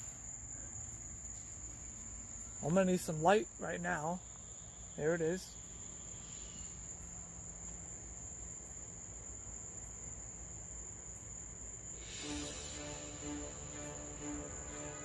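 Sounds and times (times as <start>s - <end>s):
crickets trilling: 0.0s - 15.0s
faint outdoor hiss: 0.0s - 15.0s
music: 12.0s - 15.0s.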